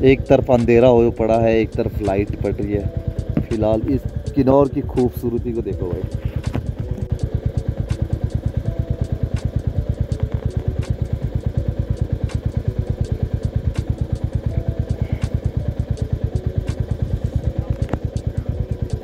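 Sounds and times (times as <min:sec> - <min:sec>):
motorcycle engine idling: 0:00.0 - 0:19.0.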